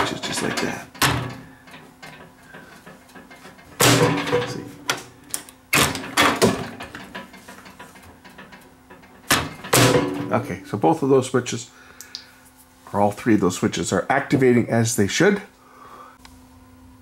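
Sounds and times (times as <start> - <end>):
microwave door clunking shut: 1.0 - 1.4, 3.8 - 5.1, 9.3 - 10.5.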